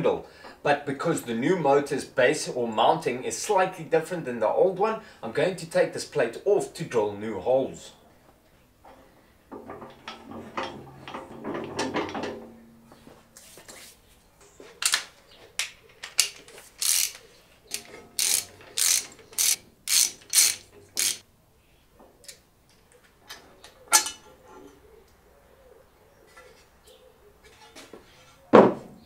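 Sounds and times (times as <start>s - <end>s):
ratchet wrench clicking: 16.2s - 21.2s.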